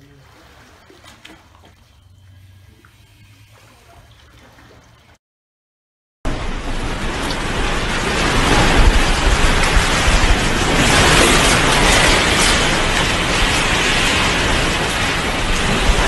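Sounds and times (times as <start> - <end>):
metal racks rattling and rumbling: 6.4 - 16.0.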